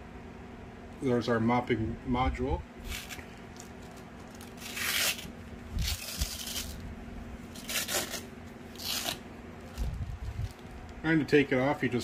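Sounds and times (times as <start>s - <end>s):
cloth rubbing against plastic: 4.2s - 6.8s, 7.5s - 10.9s.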